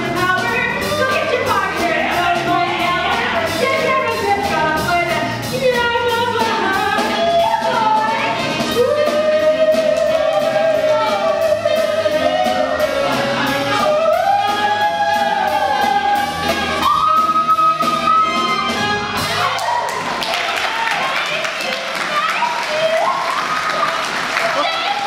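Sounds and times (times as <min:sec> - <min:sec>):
woman singing swing jazz: 0:00.0 - 0:18.7
jazz band accompaniment: 0:00.0 - 0:22.3.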